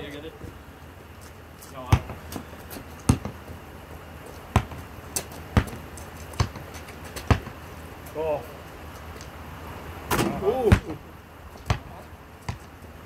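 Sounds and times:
basketball bouncing on hard ground: 0:01.2 - 0:07.7, 0:10.1 - 0:13.0.

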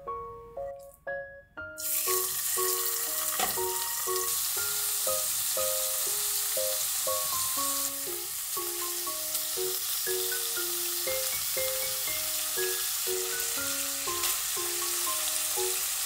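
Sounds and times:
soft piano music: 0:00.0 - 0:16.0
meat sizzling in a pan: 0:01.8 - 0:16.0.

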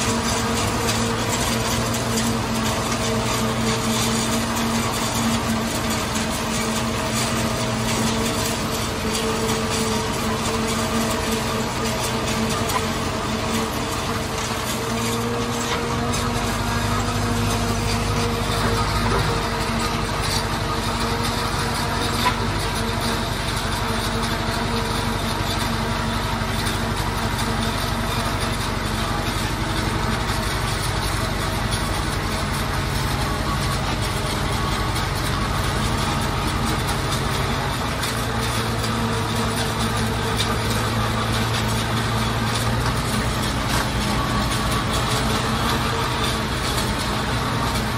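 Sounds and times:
forage harvester chopping corn: 0:00.0 - 0:47.9
tractor engines running: 0:00.0 - 0:47.9.

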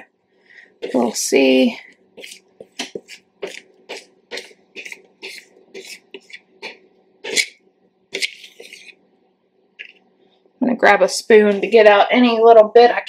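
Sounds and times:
spatula scraping plastic bowl: 0:00.8 - 0:09.1.

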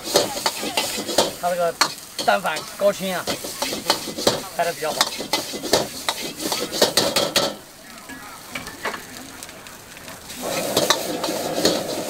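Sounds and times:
metal ladle scraping a wok: 0:00.0 - 0:07.6, 0:10.3 - 0:12.0
fried rice sizzling: 0:00.0 - 0:12.0.

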